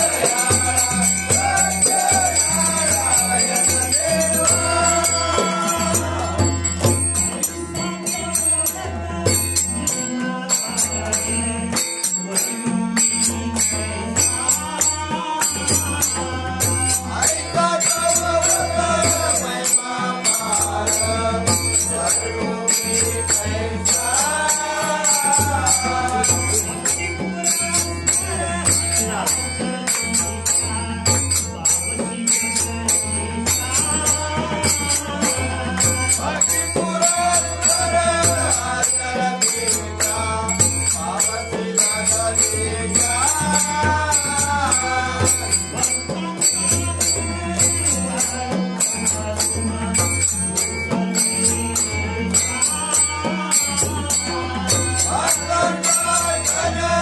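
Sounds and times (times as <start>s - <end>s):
group singing a hymn: 0.0s - 7.2s, 14.2s - 29.7s, 52.6s - 57.0s
harmonium: 0.0s - 57.0s
jingling percussion: 0.0s - 57.0s
rhythmic hand-clapping: 0.0s - 57.0s.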